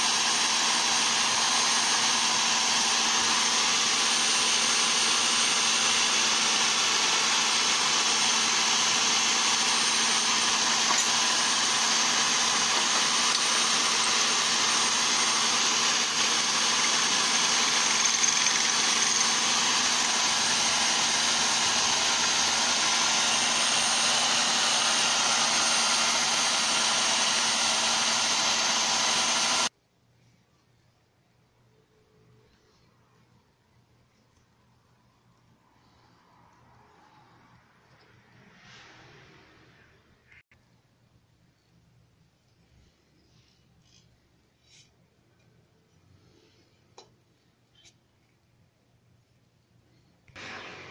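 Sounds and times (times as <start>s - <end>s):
blade shaping spinning ferrule: 0.0s - 29.7s
electric drill running: 0.0s - 29.7s, 50.4s - 50.9s.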